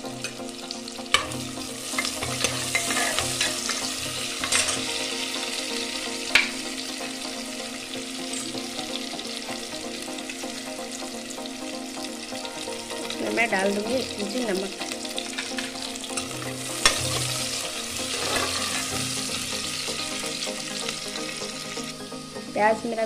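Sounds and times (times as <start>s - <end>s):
onion sizzling in hot oil: 0.0s - 22.4s.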